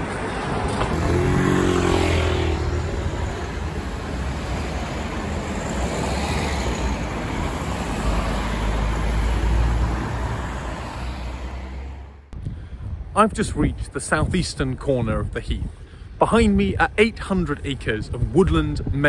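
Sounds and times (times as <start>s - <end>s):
vehicle engine: 0.0s - 12.3s
cars passing: 0.0s - 12.4s.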